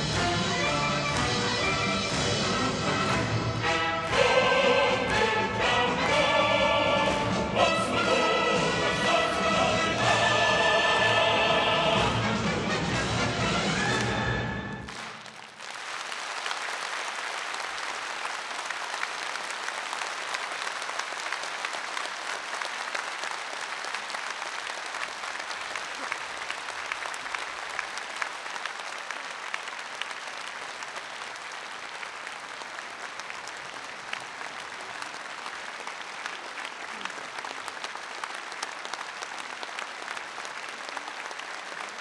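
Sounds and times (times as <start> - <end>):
audience applauding: 0.0 - 42.0
choir singing: 3.6 - 13.0.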